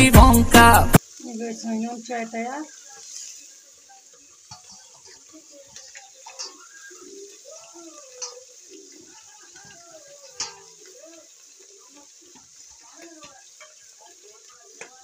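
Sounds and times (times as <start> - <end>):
faint background voices: 1.2 - 15.0
metal colander clinking: 5.9 - 6.7, 8.0 - 8.9, 9.6 - 10.8.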